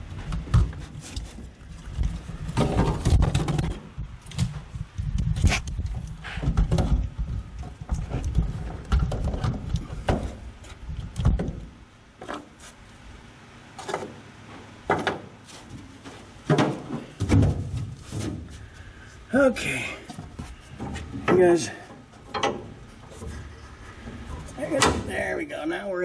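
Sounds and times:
rumbling handling noise: 0.0s - 25.6s
metal knocks and clicks: 22.2s - 23.3s.

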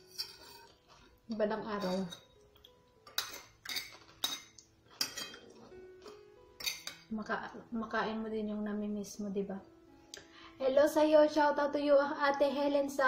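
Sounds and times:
spoon scraping porcelain plate: 0.0s - 0.8s, 1.8s - 2.4s, 3.1s - 7.1s.

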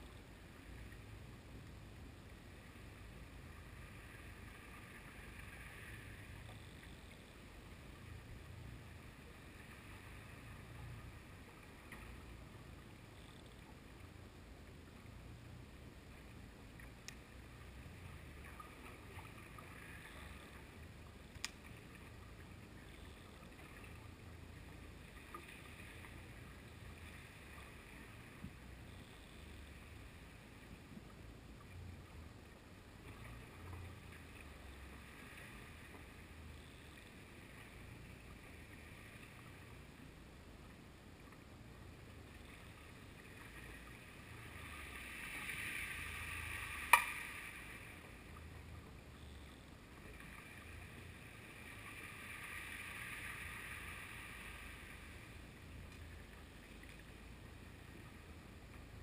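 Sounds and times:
muffled underwater rumble: 0.0s - 59.0s
small clicks: 21.3s - 21.7s
hiss: 52.0s - 55.1s.

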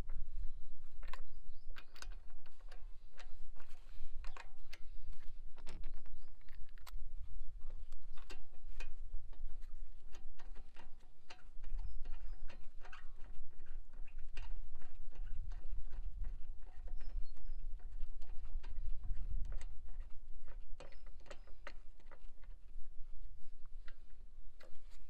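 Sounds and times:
light clicks and knocks: 7.6s - 22.7s.

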